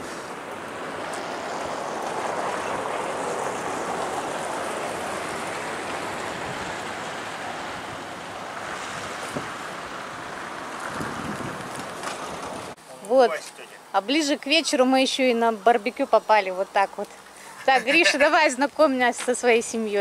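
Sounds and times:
rushing wind: 0:00.0 - 0:12.8.

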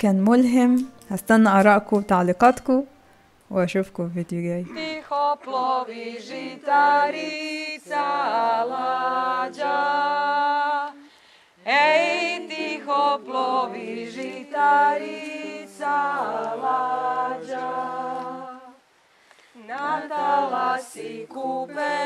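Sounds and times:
mixed group singing a cappella: 0:04.7 - 0:18.9, 0:19.6 - 0:22.0.

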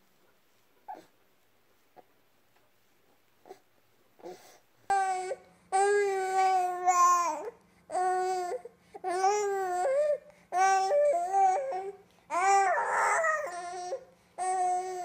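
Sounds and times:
infant breathing: 0:03.4 - 0:04.6
infant whining wails: 0:04.2 - 0:15.0.

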